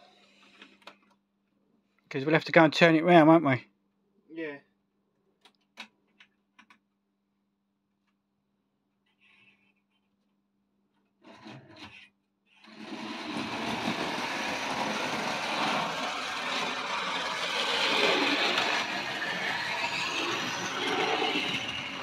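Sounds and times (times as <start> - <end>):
model train running on track: 12.6 - 22.0.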